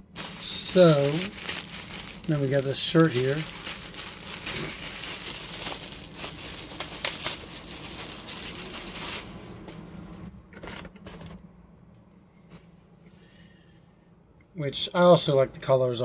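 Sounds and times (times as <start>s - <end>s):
plastic bag crinkling: 0.0s - 9.8s
handling rustles: 0.1s - 10.2s.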